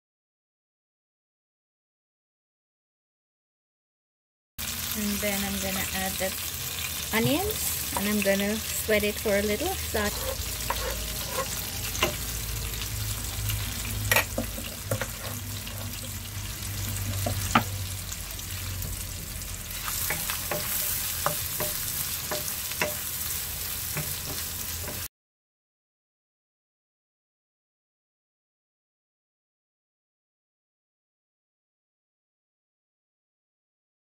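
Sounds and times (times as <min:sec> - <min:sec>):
onions sizzling in oil: 0:04.6 - 0:25.1.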